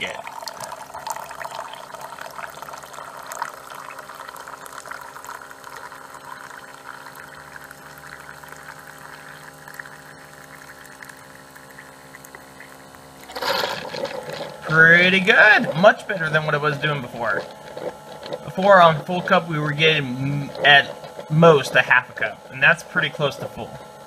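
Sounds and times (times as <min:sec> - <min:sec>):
water pouring into mug: 0:00.0 - 0:23.6
steady low hum: 0:00.0 - 0:24.0.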